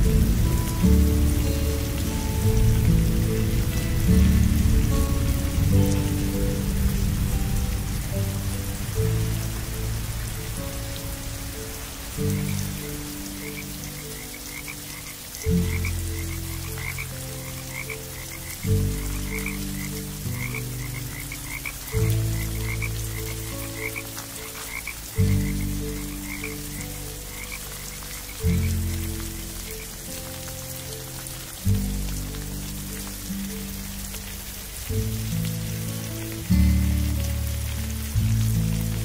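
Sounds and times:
deep slow music chords: 0.0s - 39.0s
rain patter: 0.0s - 39.0s
frogs croaking: 4.6s - 34.9s.

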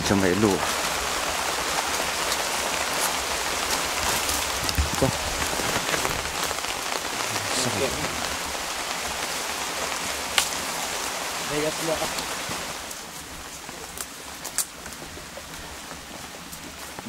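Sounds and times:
rain falling on foliage: 0.0s - 17.0s
small pattering clicks: 13.8s - 17.0s.

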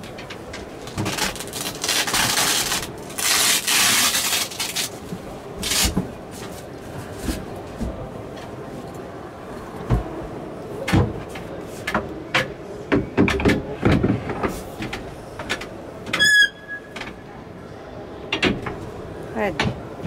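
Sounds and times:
short high squeak: 16.2s - 17.0s.

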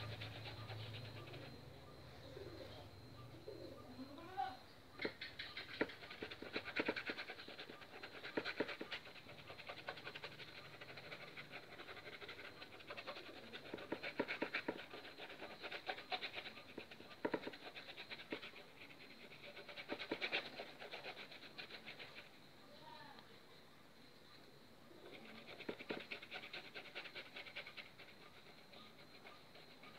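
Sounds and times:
paintbrush scratching on canvas: 0.0s - 1.6s, 5.0s - 22.4s, 25.1s - 29.9s.

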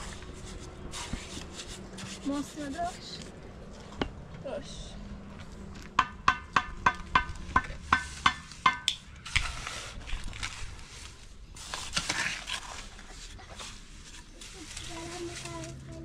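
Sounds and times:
shovel scraping mortar in wheelbarrow: 9.2s - 15.6s.

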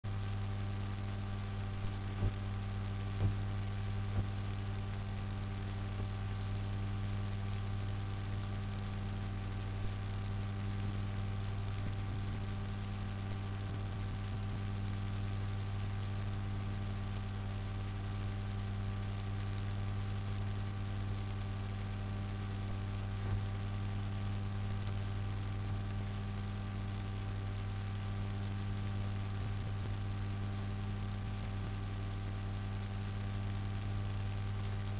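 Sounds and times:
electrical mains hum: 0.1s - 34.9s
faint clicks: 31.2s - 31.8s.

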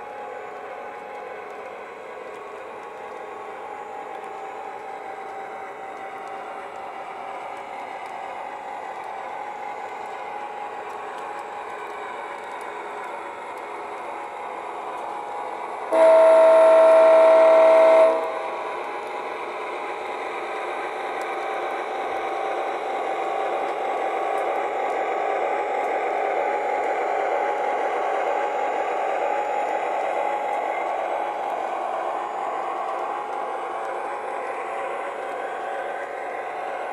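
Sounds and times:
model locomotive running on track: 0.0s - 36.9s
model train diesel horn blast: 15.9s - 18.5s.

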